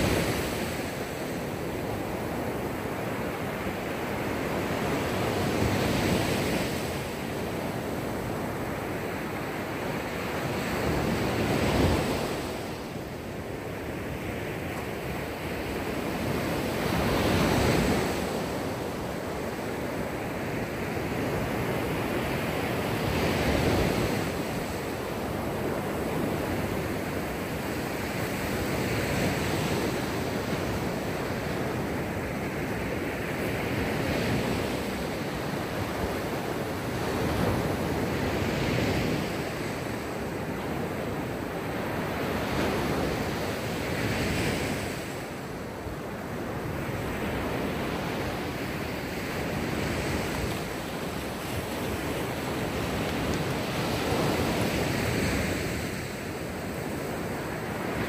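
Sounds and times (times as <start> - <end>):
sea waves breaking: 0.0 - 58.0.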